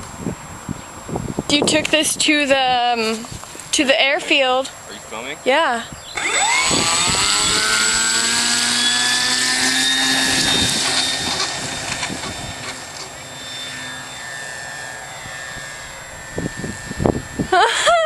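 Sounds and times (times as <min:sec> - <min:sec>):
model plane motor whining: 0:06.0 - 0:18.0.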